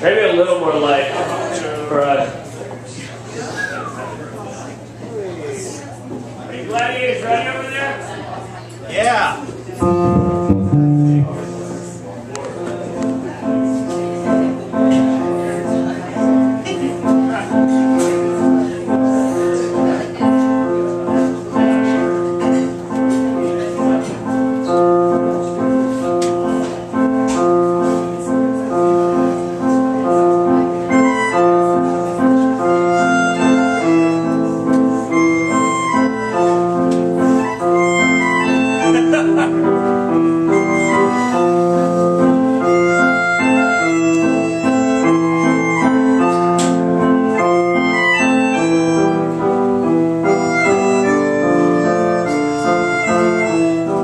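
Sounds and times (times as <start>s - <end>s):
low bass line: 9.8s - 11.9s
keyboard sustained notes: 9.8s - 12.4s.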